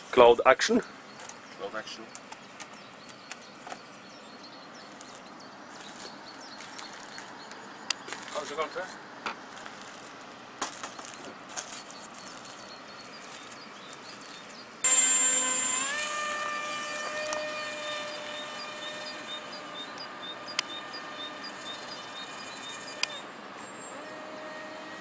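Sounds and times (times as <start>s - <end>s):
model aeroplane motor whine: 14.8s - 25.0s.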